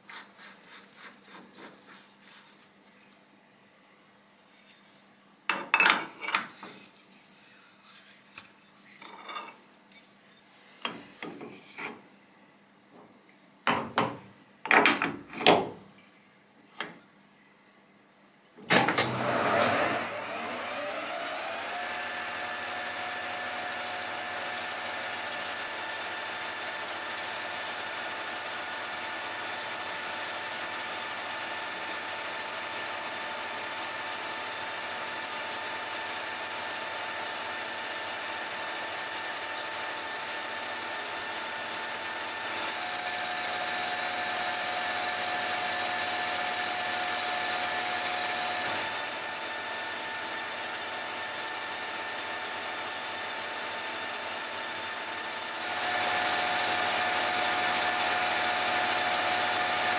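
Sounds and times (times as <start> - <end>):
knocks and clicks of steel workpiece: 13.7 - 15.8
lathe motor whine: 18.7 - 59.9.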